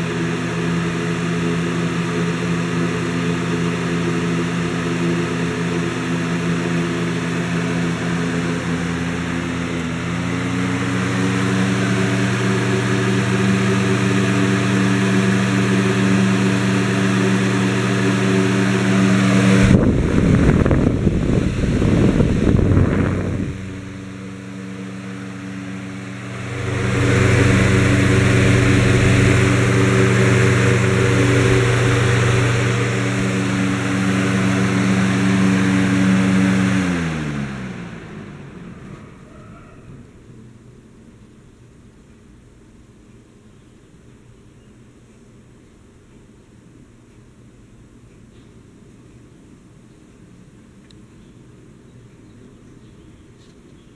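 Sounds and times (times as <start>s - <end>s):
box fan humming: 0.0s - 53.9s
wind buffeting microphone: 19.4s - 24.4s.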